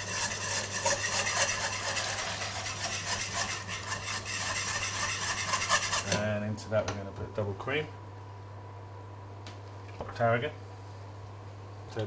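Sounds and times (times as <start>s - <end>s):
whisk scraping a pan: 0.0s - 6.2s.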